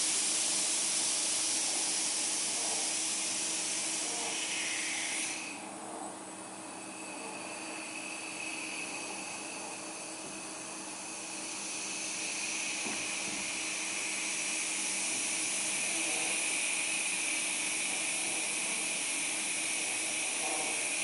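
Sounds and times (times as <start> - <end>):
robot motors whirring: 14.6 - 16.6, 17.3 - 21.0.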